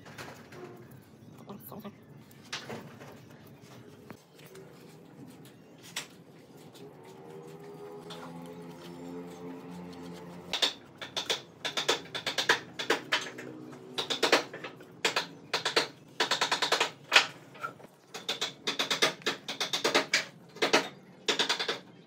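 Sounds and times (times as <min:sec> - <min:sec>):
stick scraping and tapping wood: 0:07.4 - 0:20.8.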